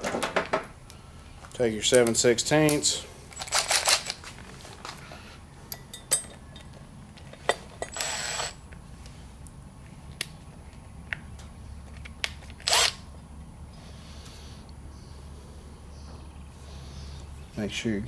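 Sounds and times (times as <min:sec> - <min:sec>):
impact wrench bursts: 0:07.8 - 0:08.6, 0:12.6 - 0:13.0.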